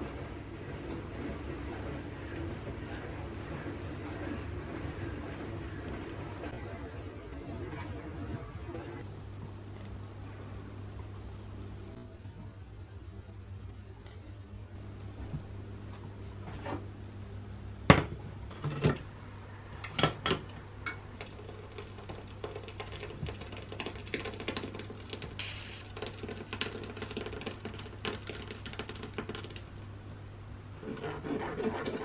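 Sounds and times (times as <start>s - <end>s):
steady low hum: 0.0s - 23.7s.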